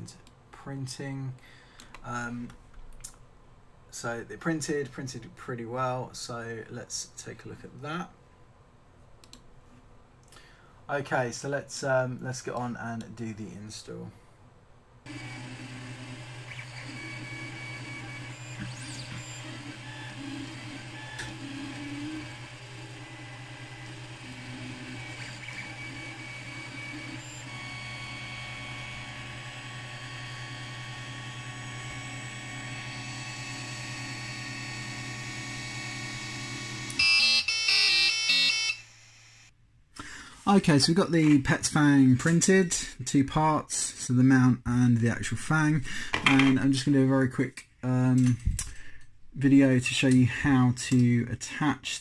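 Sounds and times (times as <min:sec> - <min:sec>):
printer fans humming: 0:15.1 - 0:37.1
stepper motors whining: 0:15.1 - 0:39.5.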